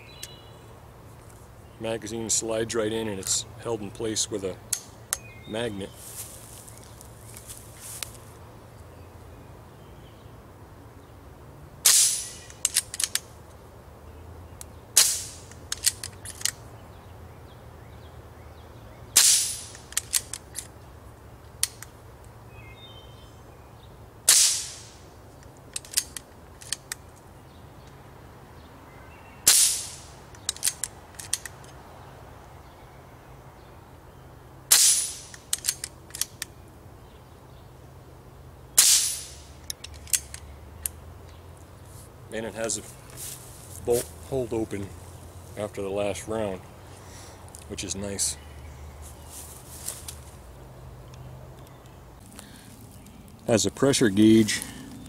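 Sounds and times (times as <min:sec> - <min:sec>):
air rifle shots: 0:11.8 - 0:13.2, 0:15.0 - 0:16.0, 0:19.2 - 0:20.3, 0:24.3 - 0:25.0, 0:29.4 - 0:30.2, 0:34.7 - 0:36.2, 0:38.8 - 0:39.5
rifle bolt clicking: 0:12.5 - 0:13.2, 0:15.5 - 0:16.6, 0:19.7 - 0:20.7, 0:25.7 - 0:27.0, 0:35.3 - 0:36.5, 0:39.6 - 0:41.0.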